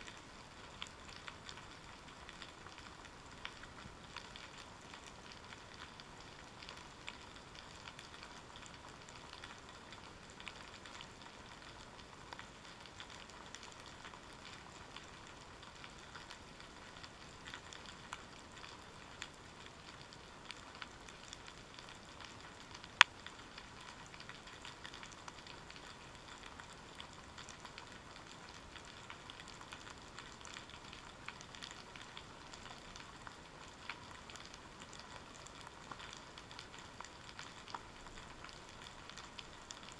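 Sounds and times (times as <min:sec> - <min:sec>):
underwater crackling clicks: 0:22.3 - 0:33.0.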